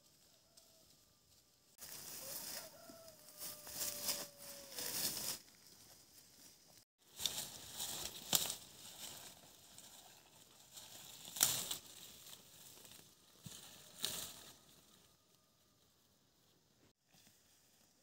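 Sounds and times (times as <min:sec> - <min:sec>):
rustling and crackling: 0:03.4 - 0:14.7.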